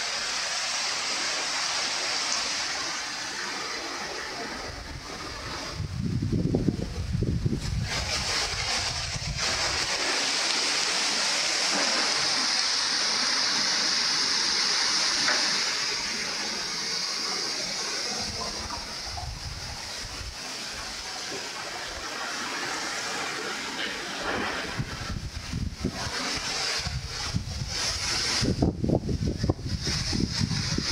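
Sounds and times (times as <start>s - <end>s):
wind rushing through trees: 0.0s - 30.9s
wind rumble on microphone: 4.4s - 10.1s, 18.1s - 21.0s, 24.1s - 30.9s.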